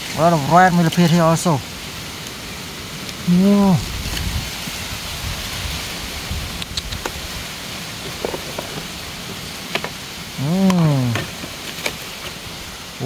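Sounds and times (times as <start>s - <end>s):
steady hiss: 0.0s - 13.0s
man exclaiming: 3.2s - 3.9s, 10.4s - 11.3s
faint clicks: 6.6s - 7.2s.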